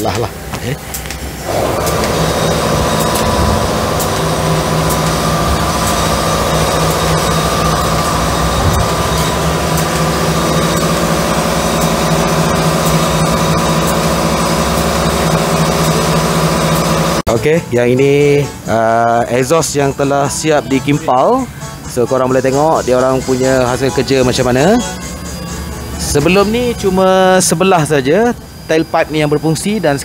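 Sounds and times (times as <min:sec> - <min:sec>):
arc welding hum and buzz: 0:00.0 - 0:20.6.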